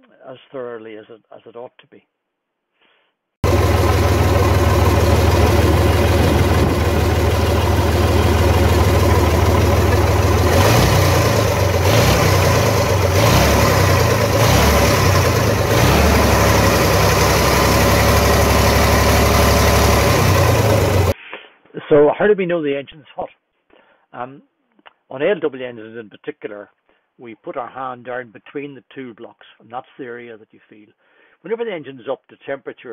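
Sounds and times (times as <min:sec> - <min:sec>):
diesel engine idling and revving: 0:03.4 - 0:21.2.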